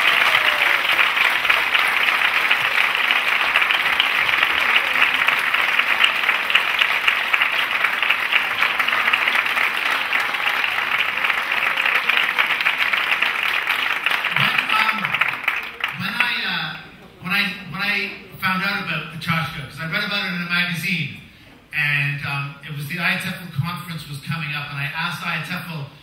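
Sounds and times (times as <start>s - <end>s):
audience applauding: 0.0s - 16.4s.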